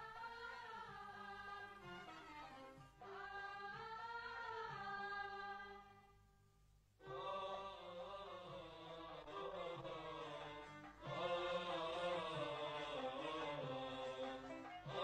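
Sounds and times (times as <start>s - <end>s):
chant-like singing: 0.0s - 2.1s, 3.0s - 6.0s, 7.0s - 15.0s.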